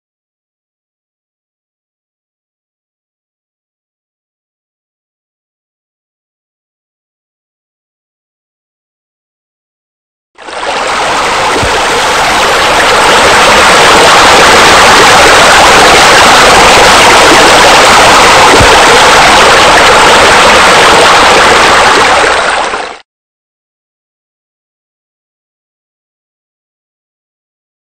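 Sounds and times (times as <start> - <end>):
loud rushing water: 10.4 - 23.0.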